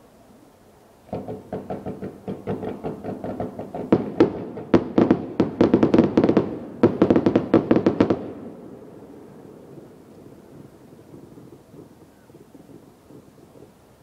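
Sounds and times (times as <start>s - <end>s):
firework shells bursting: 1.1s - 8.4s.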